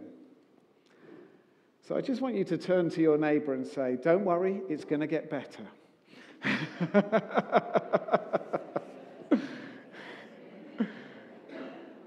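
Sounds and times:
person laughing: 6.4 - 9.7
murmur of voices: 8.0 - 12.0.

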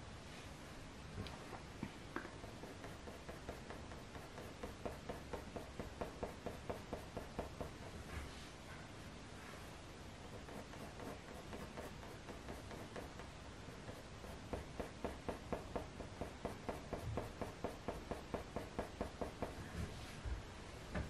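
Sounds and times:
pencil scratching on paper: 2.4 - 8.4, 10.2 - 19.6.

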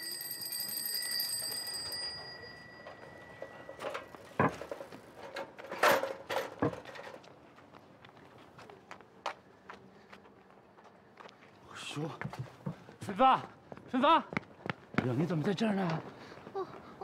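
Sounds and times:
bell ringing in rapid strikes: 0.0 - 3.8
sharp knocks and clatters: 3.4 - 7.2.

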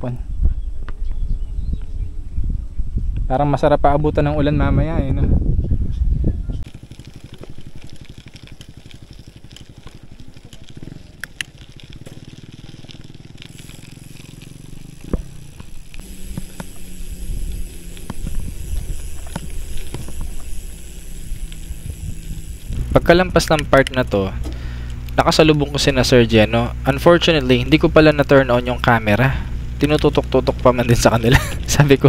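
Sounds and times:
bike tyres on concrete: 6.5 - 32.0
tyres crunching on gravel: 6.6 - 32.0.

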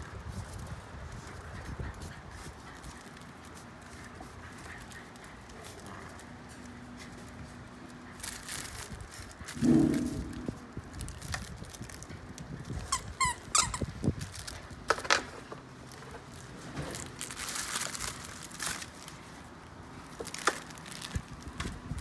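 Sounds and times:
puppies scuffling with a toy: 0.0 - 22.0
high squeaks: 12.8 - 13.9.

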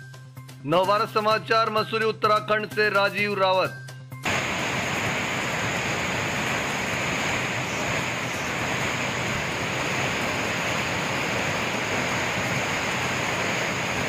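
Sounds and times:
waterfall rushing: 4.2 - 14.0.

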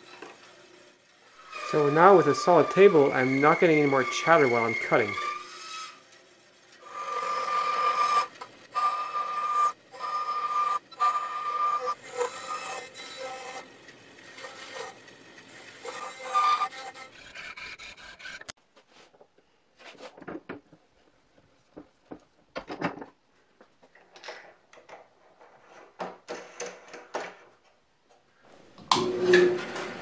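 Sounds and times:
bandsaw cutting wood: 0.1 - 6.2, 6.8 - 18.6.

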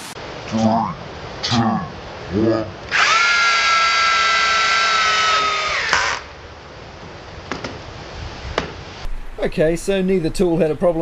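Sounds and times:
cordless drills driving screws: 2.9 - 3.8.

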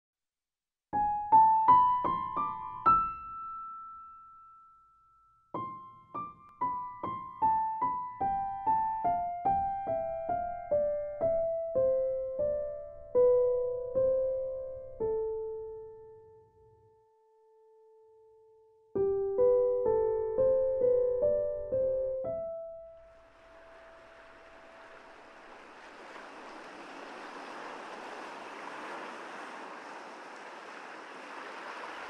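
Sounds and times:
solo piano notes: 1.0 - 25.9.

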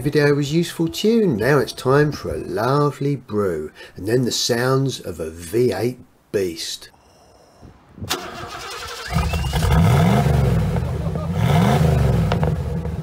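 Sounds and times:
engine starting and revving: 8.1 - 13.0.

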